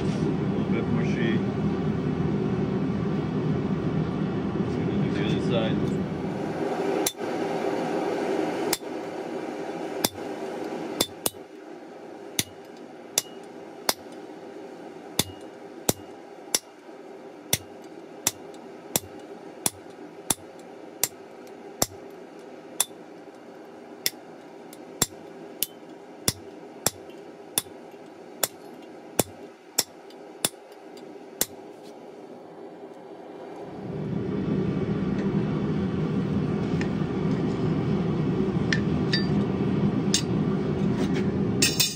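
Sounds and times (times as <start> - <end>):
steady rushing noise: 4.5 - 16.0
hammer striking metal on anvil: 10.0 - 10.2, 11.0 - 11.4, 12.4 - 14.2, 15.2 - 16.8, 17.5 - 21.2, 24.0 - 27.8, 28.4 - 30.8, 31.4 - 31.6, 39.1 - 39.4, 41.6 - 41.9.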